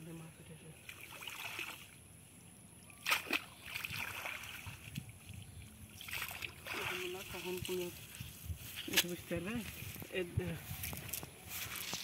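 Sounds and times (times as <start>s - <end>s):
cast net dipped in water: 0.7s - 2.1s, 2.7s - 9.2s
sharp splashes: 0.8s - 2.0s, 2.9s - 5.0s, 5.9s - 7.9s
water splashing: 0.8s - 2.0s, 2.9s - 8.1s
water running off net: 5.9s - 8.0s.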